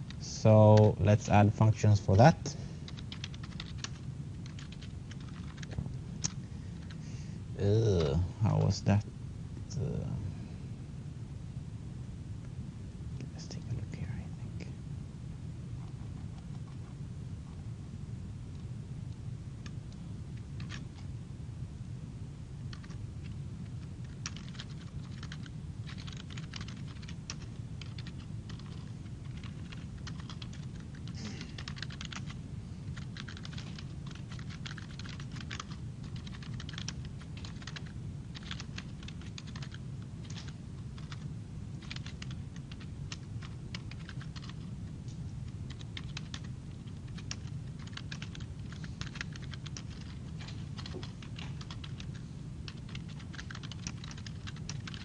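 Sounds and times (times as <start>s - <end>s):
steady low hum: 0.0s - 55.0s
typing on computer keyboard: 2.9s - 7.0s, 20.6s - 20.8s, 22.7s - 23.0s, 24.0s - 41.2s, 41.8s - 44.6s, 45.7s - 55.0s.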